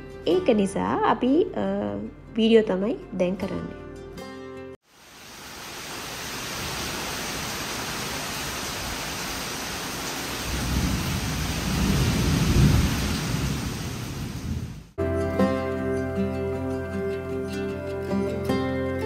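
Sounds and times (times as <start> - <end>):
steady rain: 4.8 - 15.0
thunder rumbling: 10.2 - 15.0.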